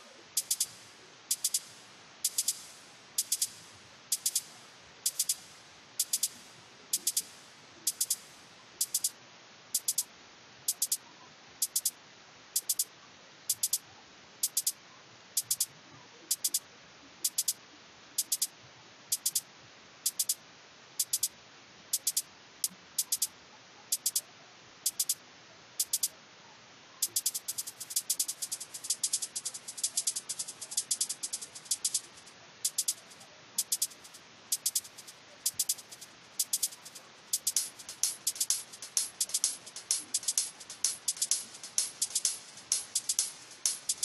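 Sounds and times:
closed hi-hat hits with reverb: 0.0 - 9.2, 9.8 - 10.1, 20.2 - 20.4, 27.0 - 44.0
faint steady hiss: 0.0 - 44.0.

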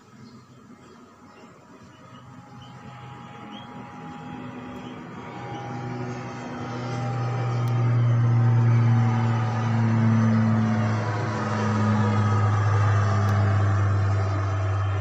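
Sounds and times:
engine humming: 0.0 - 15.0
faint bird chirps: 0.2 - 4.0.

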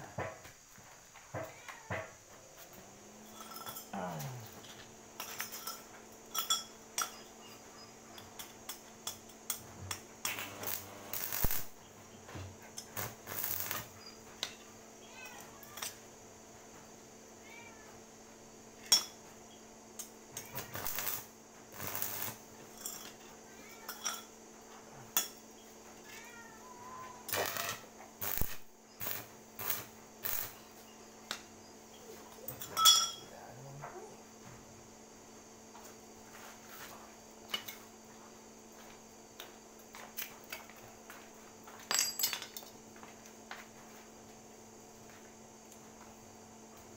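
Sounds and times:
arc welder crackling: 9.5 - 14.6, 20.0 - 22.9, 27.2 - 31.5
metal parts clinking: 41.9 - 42.7.

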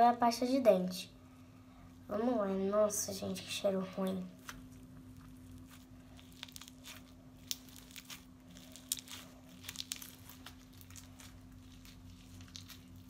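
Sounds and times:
slime kneaded by hand: 4.4 - 13.0.

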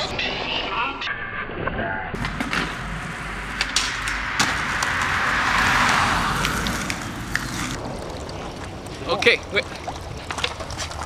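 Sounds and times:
skateboard clacks: 2.2 - 7.8
skateboard rolling on asphalt: 2.2 - 11.0.

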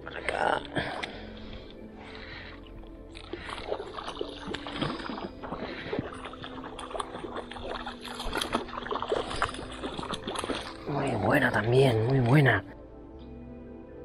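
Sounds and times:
fish splashing in water: 3.1 - 10.9.

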